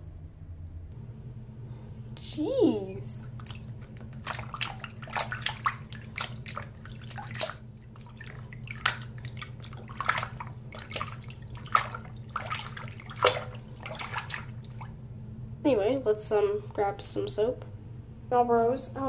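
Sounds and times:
steady low hum: 0:00.0 - 0:19.0
water splashing in sink: 0:03.2 - 0:15.6.

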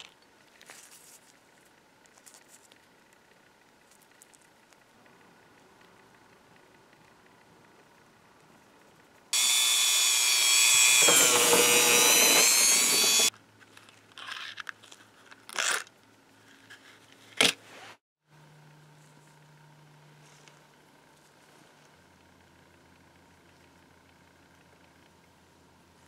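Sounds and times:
small power tool running: 0:09.3 - 0:13.3.

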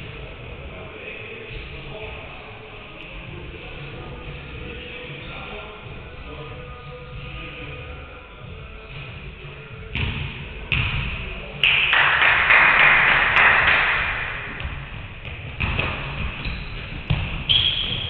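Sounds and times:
echoing hall noise: 0:00.0 - 0:18.0
basketballs bouncing on hardwood: 0:14.5 - 0:18.0.

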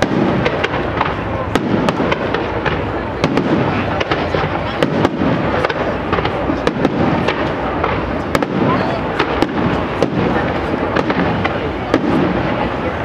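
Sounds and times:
continuous rumble: 0:00.0 - 0:13.0.

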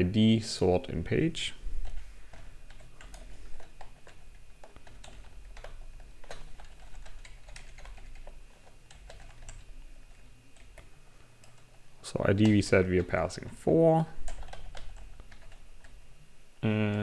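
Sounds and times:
computer keyboard typing: 0:01.8 - 0:13.6, 0:14.2 - 0:16.0.

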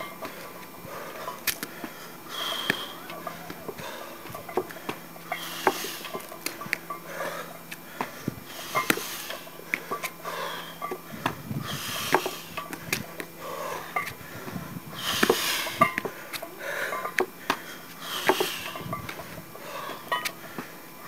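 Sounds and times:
heavy breathing: 0:00.2 - 0:20.8
barbell plates clinking: 0:02.4 - 0:07.3, 0:08.6 - 0:11.1, 0:13.6 - 0:14.2, 0:15.2 - 0:17.3, 0:18.2 - 0:20.4.

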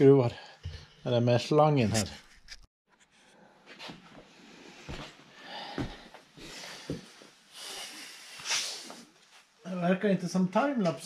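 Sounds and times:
sniffing and breathing: 0:04.6 - 0:09.2.

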